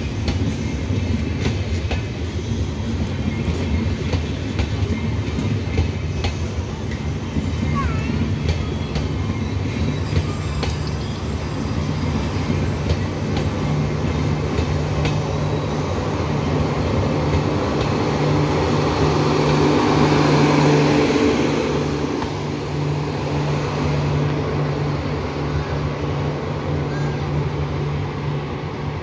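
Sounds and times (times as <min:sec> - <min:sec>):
train passing at speed: 0:00.0 - 0:29.0
wheels rumbling over rails: 0:00.0 - 0:29.0.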